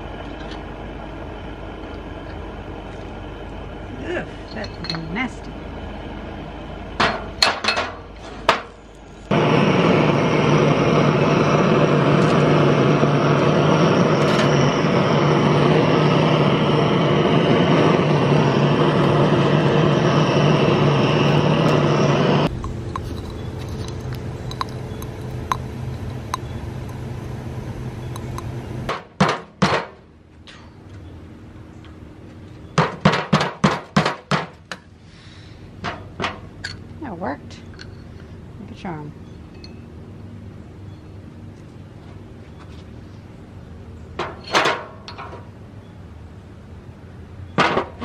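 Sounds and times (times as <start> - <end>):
sharp metallic clinks: 4.4 - 5.4, 39.2 - 39.9
gas torch hissing: 8.5 - 29.1.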